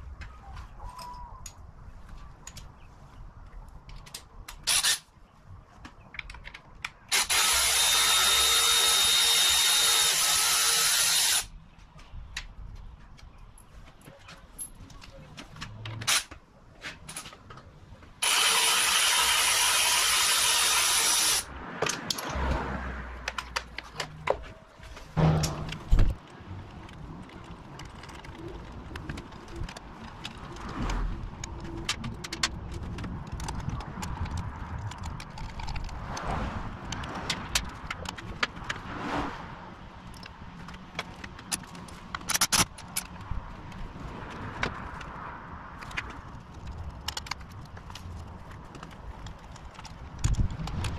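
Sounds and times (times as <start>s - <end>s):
hand tools clicking and ratcheting: 3.9s - 5.1s, 6.1s - 11.5s, 18.2s - 22.4s, 26.7s - 36.3s, 36.9s - 38.8s, 40.1s - 50.9s.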